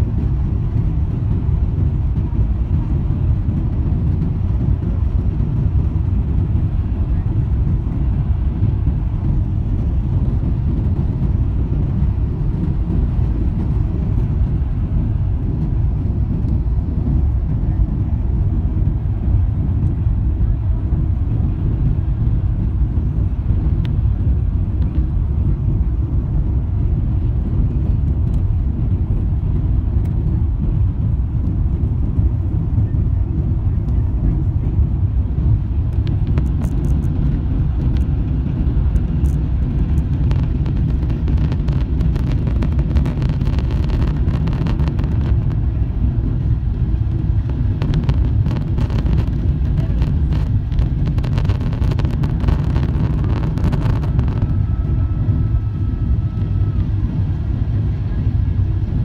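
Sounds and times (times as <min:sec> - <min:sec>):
airliner engines rumbling: 0:00.0 - 0:59.0
rushing air: 0:00.0 - 0:59.0
light crackles and clicks: 0:35.9 - 0:38.2, 0:38.9 - 0:45.7, 0:47.0 - 0:54.7.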